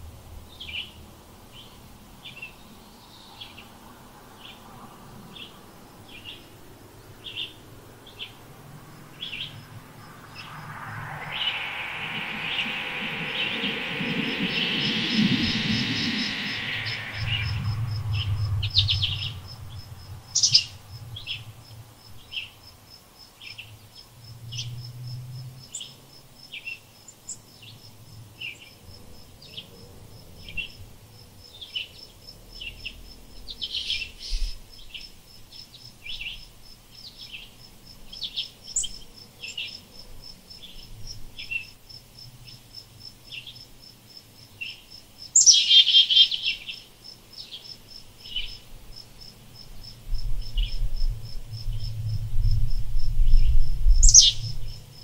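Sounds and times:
high insect trill: 8.2s - 21.4s.

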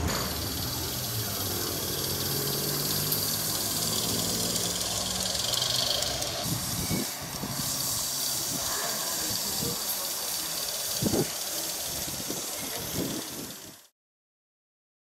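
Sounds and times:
model steam locomotive hissing: 0.0s - 13.9s.

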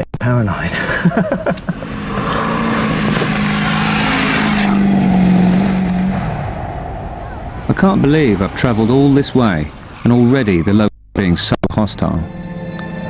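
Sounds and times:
road noise: 0.5s - 11.4s
vehicle engine hum: 1.2s - 10.7s.

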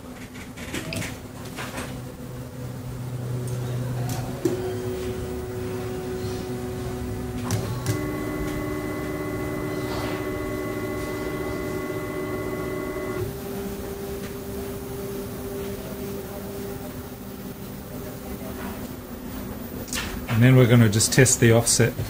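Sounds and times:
stepper motors whining: 4.3s - 16.5s.

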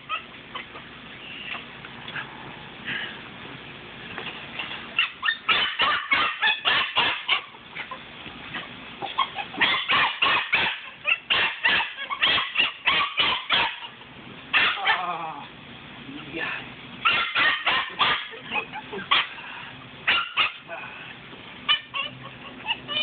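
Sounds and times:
puppy barking in short yips: 5.0s - 7.4s, 17.0s - 18.4s.

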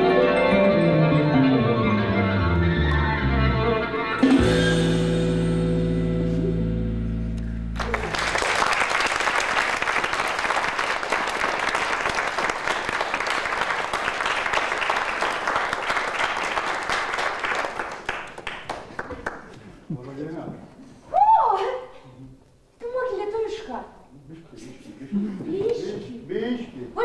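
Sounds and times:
music: 0.0s - 8.3s
audience applause: 7.8s - 19.6s.

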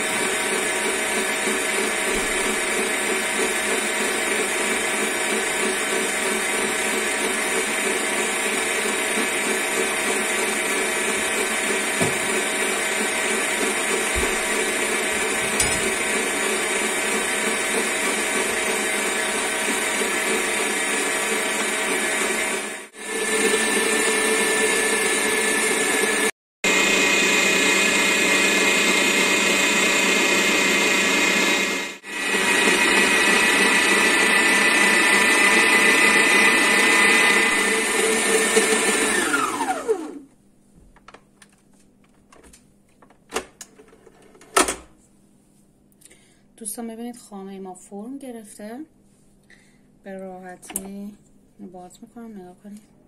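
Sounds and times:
stand mixer motor whine: 0.0s - 40.3s.

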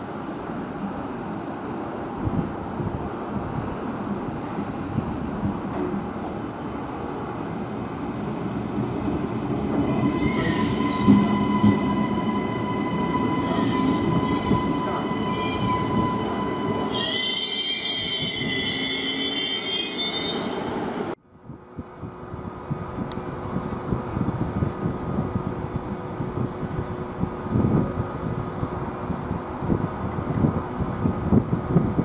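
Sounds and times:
train wheels rumbling on rails: 2.0s - 21.2s
steady high tone: 10.0s - 20.6s.

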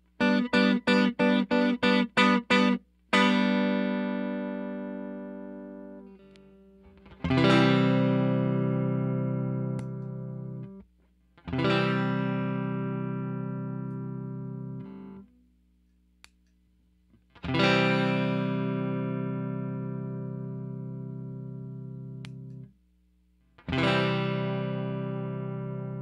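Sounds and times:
electric guitar chord strummed: 0.2s - 10.8s, 11.5s - 15.3s, 17.4s - 22.6s, 23.7s - 26.0s
click: 15.8s - 16.6s, 22.2s - 22.7s.

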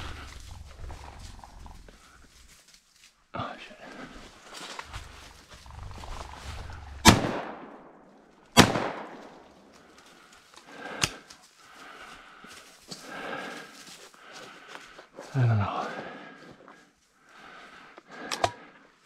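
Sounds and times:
brush rustling: 0.0s - 7.1s
shotgun shots: 7.0s - 7.9s, 8.6s - 9.3s.

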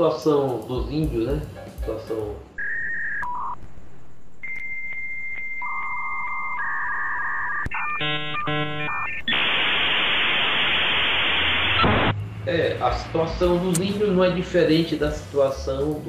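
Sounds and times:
buzzy modem chords: 2.5s - 15.2s
dial-up modem tones: 2.6s - 3.6s, 4.4s - 10.6s
static rush: 6.6s - 12.2s.

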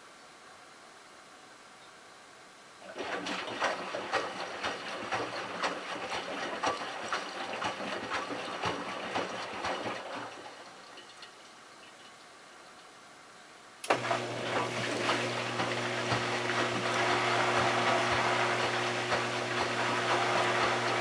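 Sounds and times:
washing machine motor humming: 2.8s - 10.6s, 13.8s - 21.0s
water sloshing in washer drum: 2.8s - 11.3s, 13.9s - 21.0s.

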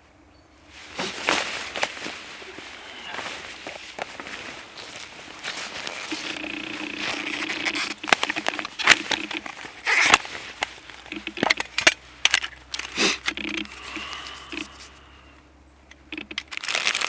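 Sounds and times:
poncho rustling: 0.6s - 15.2s.

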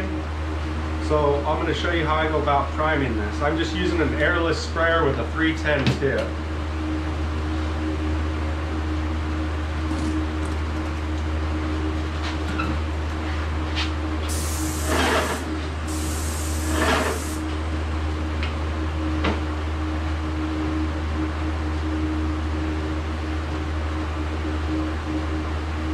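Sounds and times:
exhaust fans droning: 0.0s - 25.9s
paint sprayer hissing: 14.2s - 17.5s.

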